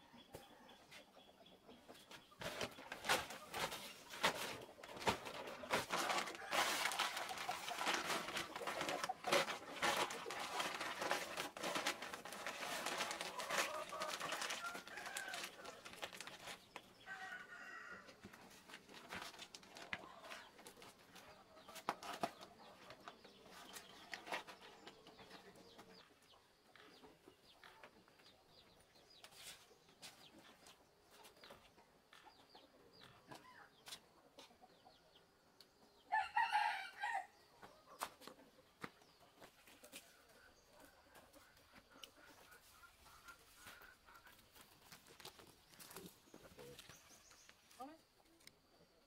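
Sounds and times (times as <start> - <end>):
rooster crowing: 17.1 - 18.1, 36.1 - 37.4.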